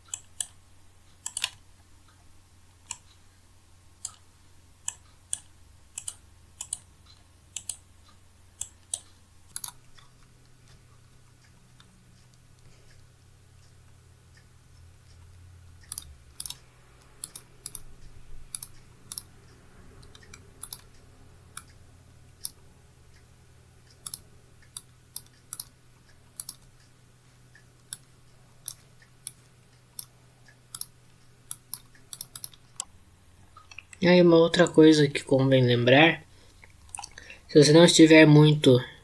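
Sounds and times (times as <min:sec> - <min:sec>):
faint low hum: 0:00.0 - 0:39.0
mouse buttons clicking: 0:01.2 - 0:01.6, 0:04.8 - 0:06.9, 0:07.5 - 0:07.8, 0:15.8 - 0:19.3, 0:20.0 - 0:20.9, 0:23.9 - 0:25.7, 0:31.5 - 0:32.9.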